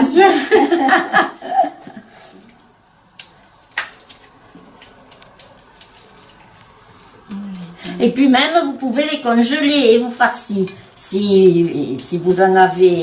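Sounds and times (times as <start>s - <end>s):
wet squishing of stuffing: 2.1s - 8.0s.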